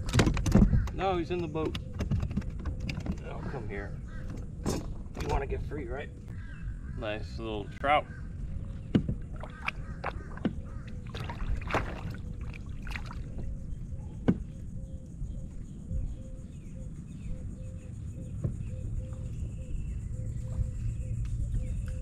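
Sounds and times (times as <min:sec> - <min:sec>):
wind and water rumble: 0:00.0 - 0:16.3
knocks on plastic kayak hull: 0:08.9 - 0:09.5.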